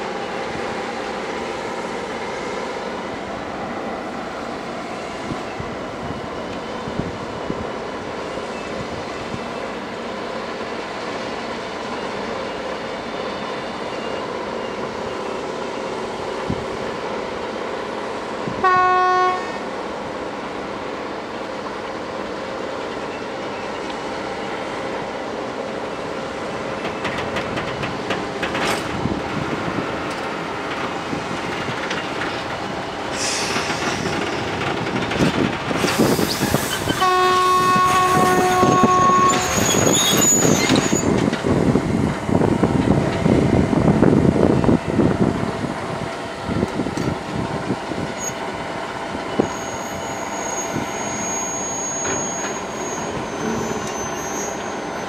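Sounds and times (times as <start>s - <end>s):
freight train rolling: 0.0s - 55.0s
train horn blast: 18.6s - 19.6s, 37.0s - 40.0s.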